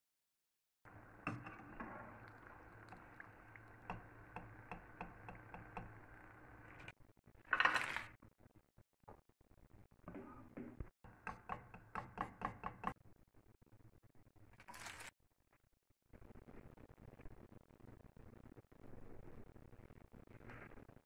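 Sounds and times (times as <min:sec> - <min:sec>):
fried food rustling onto paper towel: 0:14.6 - 0:15.1.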